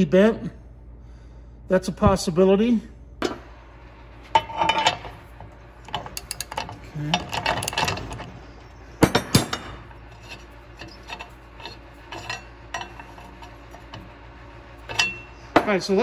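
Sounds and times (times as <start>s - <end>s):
metal parts scraping: 4.3s - 15.6s.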